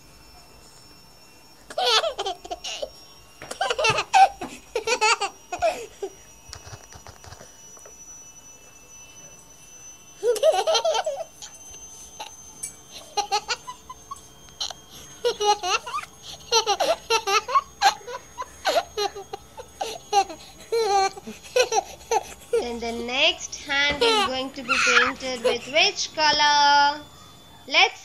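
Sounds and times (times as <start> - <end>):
baby laughing: 1.7 - 2.9, 10.3 - 11.2, 14.6 - 23.0, 23.9 - 25.8.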